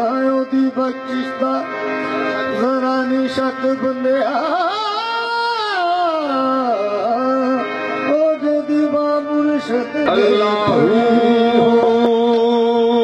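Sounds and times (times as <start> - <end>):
harmonium and tabla music: 0.0 - 13.0
person singing: 2.4 - 13.0.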